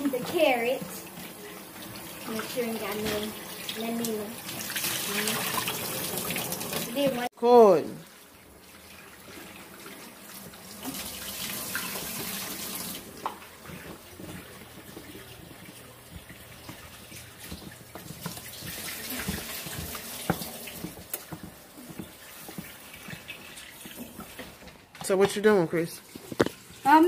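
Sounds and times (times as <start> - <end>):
faucet running into container: 0.0 - 24.8
spoon stirring carrots in pan: 13.8 - 25.5.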